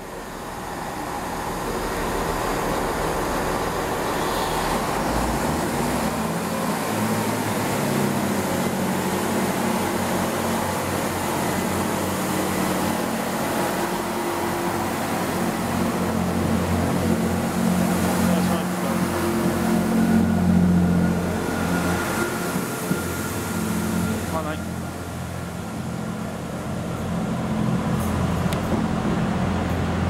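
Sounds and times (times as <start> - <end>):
diesel train engine hum: 0.0 - 30.0
train wheels on rails: 0.0 - 30.0.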